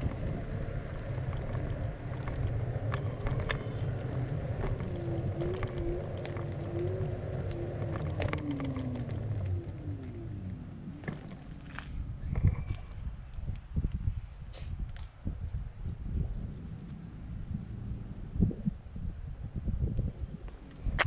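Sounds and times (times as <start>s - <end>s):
wheel clicks over cracks: 0.0s - 13.0s
faint wavering whine: 0.0s - 13.4s
longboard wheels rumbling on asphalt: 0.0s - 21.0s.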